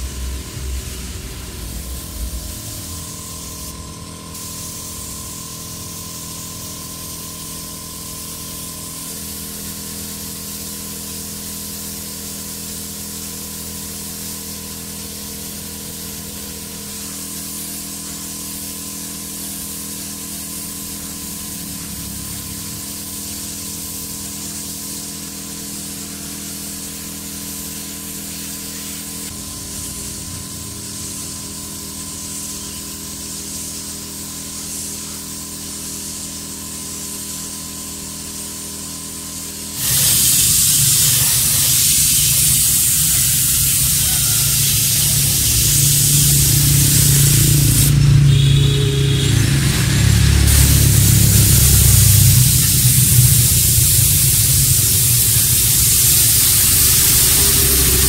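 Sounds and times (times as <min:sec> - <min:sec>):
spray paint hissing: 0:00.0 - 0:58.0
low hum: 0:45.3 - 0:55.7.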